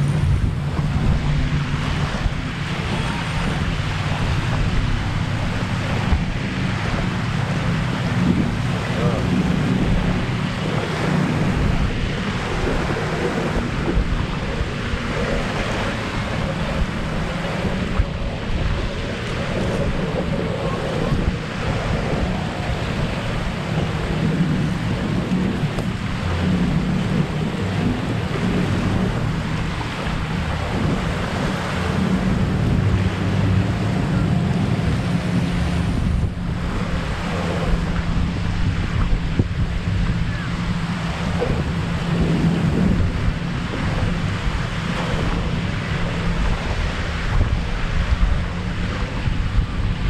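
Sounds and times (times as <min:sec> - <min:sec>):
waves lapping on shore: 0:00.0 - 0:50.0
wind buffeting microphone: 0:00.0 - 0:50.0.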